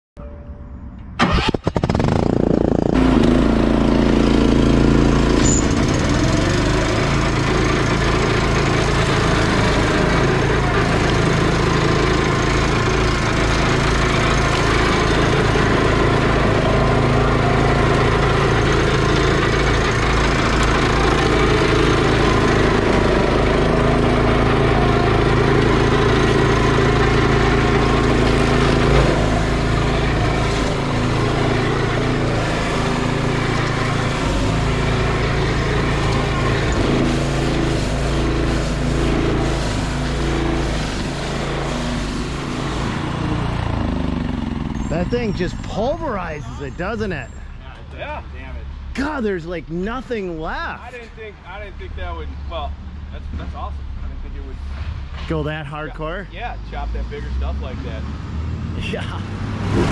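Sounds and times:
walk-behind tractor engine: 1.2s - 48.0s, 49.0s - 51.2s
cutting deck chopping brush: 2.3s - 43.4s.

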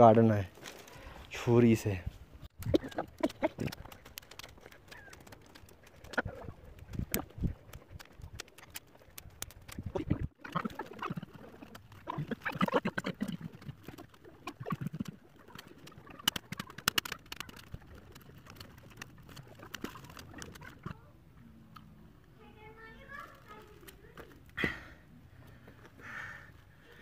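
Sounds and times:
willow rods creaking and clicking: 2.5s - 21.0s, 23.2s - 24.6s.

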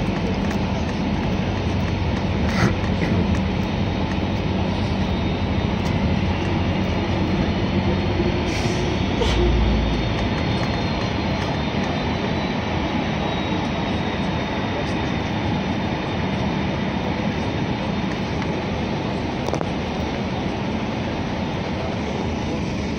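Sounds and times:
deep rumble: 0.0s - 14.6s
vehicle engine and road noise: 0.0s - 22.9s.

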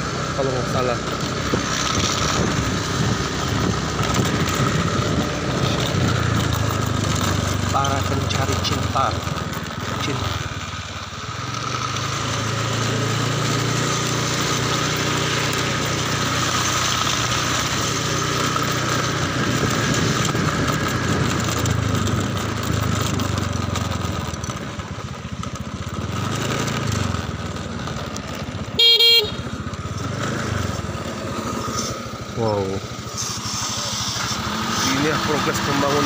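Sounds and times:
motorcycle engine running: 0.0s - 36.0s
road and wind noise: 0.0s - 36.0s
short horn beep: 28.8s - 29.6s.

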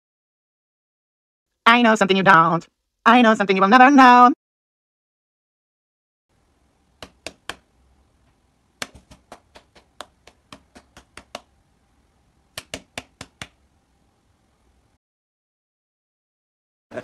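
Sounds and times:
cat paw slapping hand: 7.0s - 7.6s, 8.8s - 11.5s, 12.6s - 13.6s.

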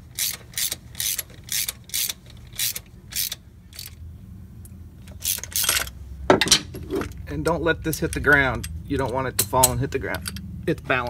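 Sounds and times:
ratchet wrench clicking: 0.1s - 4.0s, 5.1s - 5.9s.

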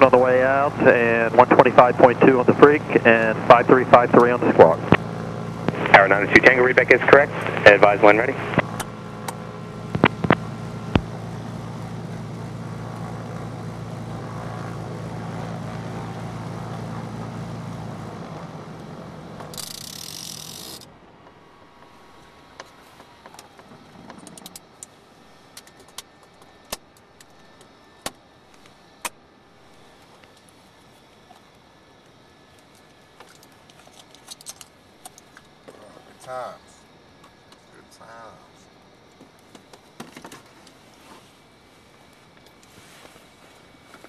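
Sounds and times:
aircraft engines idling: 0.0s - 44.0s.

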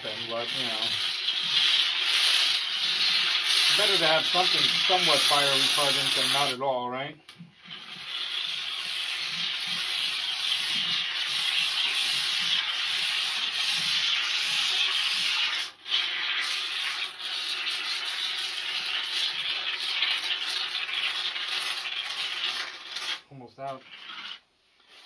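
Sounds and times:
scraper rasping: 0.0s - 6.6s, 21.8s - 25.0s.

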